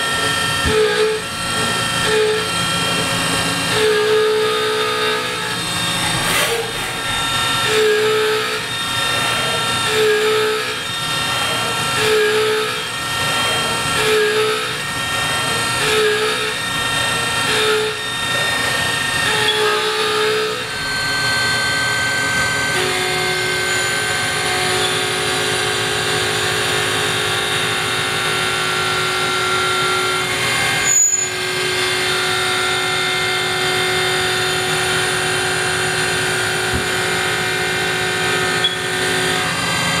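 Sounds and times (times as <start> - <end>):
high-pitched milling whine: 0.0 - 40.0.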